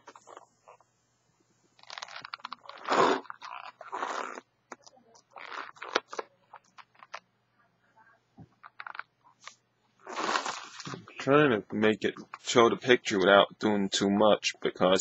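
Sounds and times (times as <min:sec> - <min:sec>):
hands rubbing latex balloon: 0:01.8 - 0:04.0.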